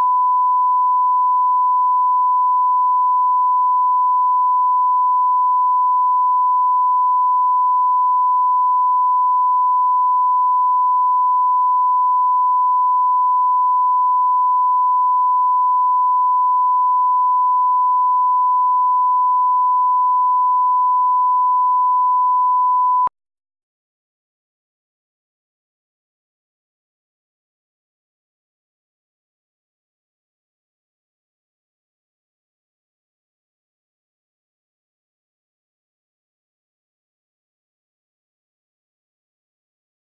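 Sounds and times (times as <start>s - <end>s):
steady sine reference tone: 0.0s - 23.1s.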